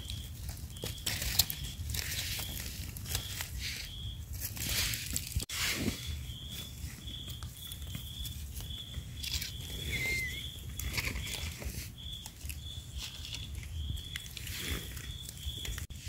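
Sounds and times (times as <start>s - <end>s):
dry forest litter crackling: 0.0s - 16.0s
high chirp: 5.9s - 11.4s
short rising whistle: 9.8s - 10.5s.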